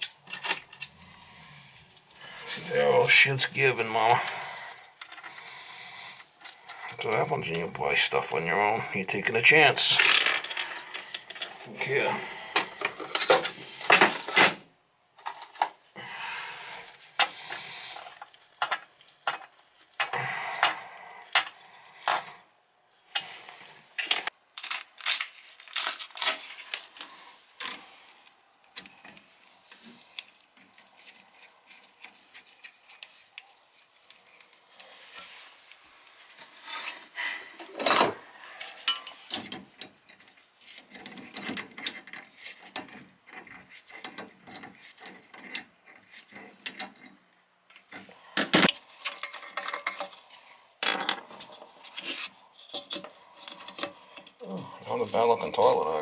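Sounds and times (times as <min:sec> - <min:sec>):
metal tools clinking and scraping: 0:37.6 - 0:47.1, 0:48.6 - 0:56.0.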